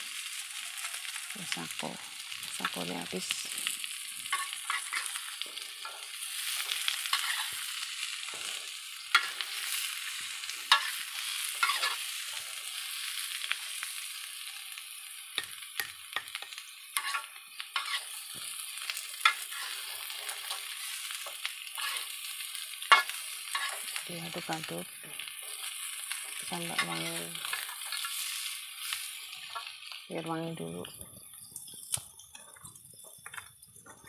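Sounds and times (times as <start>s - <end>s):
food sizzling in a wok: 0.0s - 34.0s
metal spatula scraping a pan: 4.2s - 12.4s, 15.4s - 18.3s, 19.2s - 24.0s, 25.4s - 29.7s.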